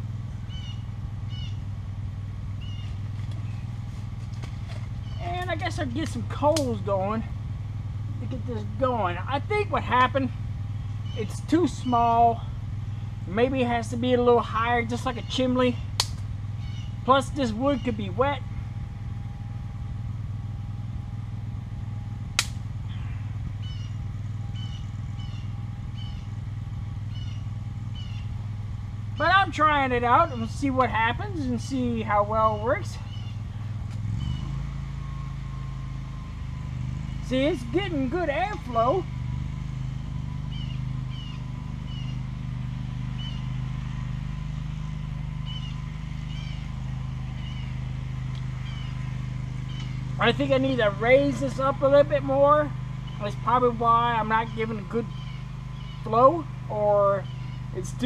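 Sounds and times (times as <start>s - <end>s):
bird chirping: 0.0s - 1.7s, 2.5s - 3.8s, 4.7s - 6.2s, 10.8s - 13.2s, 14.9s - 18.2s, 22.8s - 26.4s, 27.0s - 28.4s, 29.0s - 31.8s, 32.4s - 35.3s, 40.3s - 42.3s, 43.1s - 43.7s, 45.3s - 51.8s, 53.0s - 56.4s, 57.0s - 58.0s
low engine-like hum: 0.0s - 58.0s
sharp snap: 6.0s - 6.8s, 15.9s - 16.3s, 22.3s - 22.7s.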